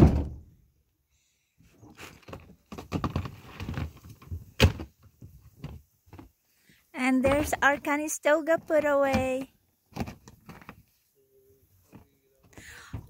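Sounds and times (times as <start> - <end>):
loud thump: 0.0 - 0.5.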